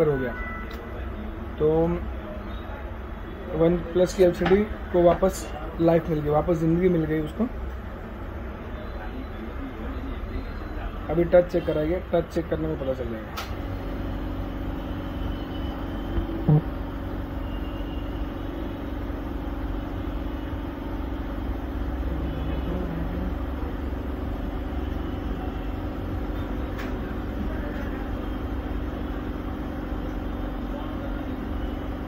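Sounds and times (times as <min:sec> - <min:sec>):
faint hum: 0:00.0 - 0:32.0
short low tone: 0:15.2 - 0:17.0.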